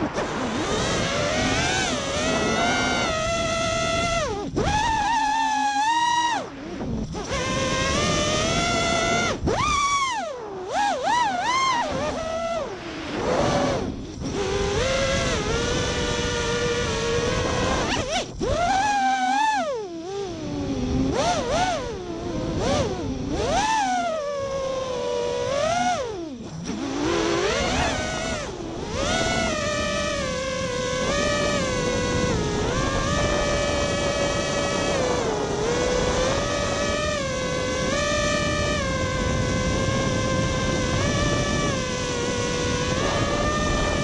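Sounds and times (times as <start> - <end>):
quadcopter motors whining: 0.0 - 44.0.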